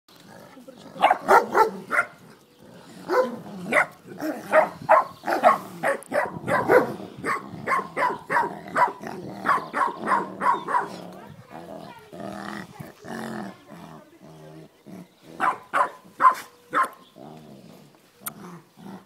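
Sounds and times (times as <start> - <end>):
dog play barking: 3.1 - 11.0, 15.4 - 17.0.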